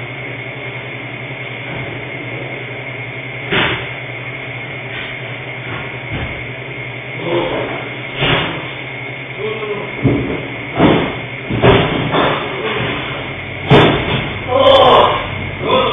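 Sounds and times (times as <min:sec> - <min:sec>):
electrical hum and hiss: 0:00.0 - 0:15.9.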